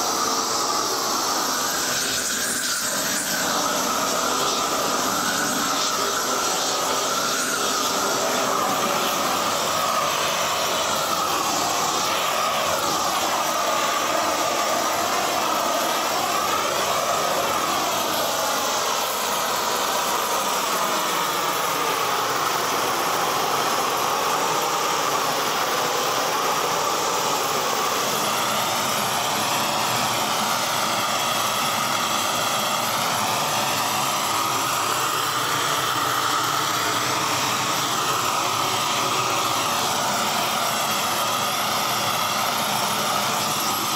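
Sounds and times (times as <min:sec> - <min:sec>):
propane torch flame rushing: 0:00.0 - 0:43.9.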